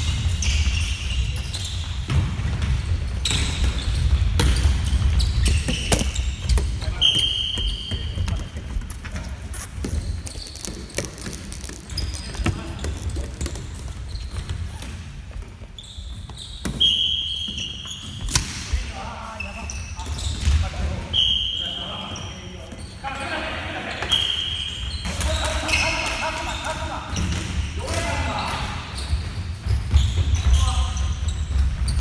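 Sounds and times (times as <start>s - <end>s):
sneakers squeaking: 0.0s - 32.0s.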